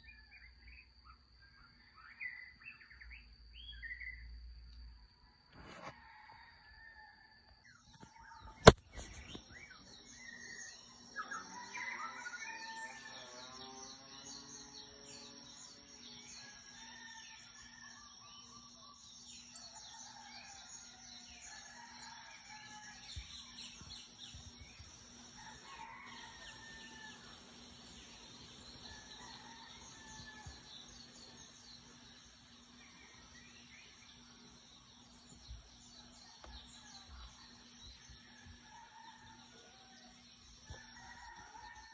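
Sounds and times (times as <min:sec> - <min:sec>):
rooster crowing: 0:05.5 - 0:07.5, 0:11.3 - 0:13.4, 0:25.3 - 0:32.1, 0:35.7 - 0:41.9
crickets trilling: 0:08.1 - 0:41.9.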